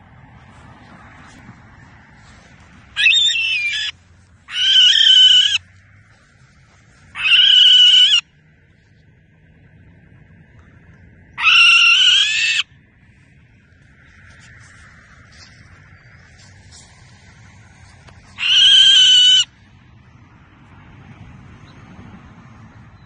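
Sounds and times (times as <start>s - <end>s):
barn owl screeching: 3.0s - 5.7s, 7.1s - 8.3s, 11.4s - 12.7s, 18.2s - 19.5s.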